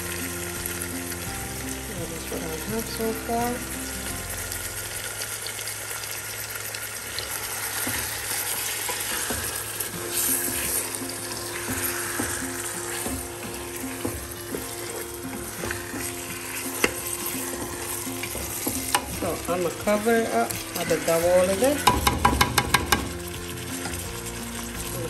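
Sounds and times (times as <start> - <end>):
food sizzling in a pot: 0.0 - 25.0
spoon scraping against pot: 20.0 - 23.2.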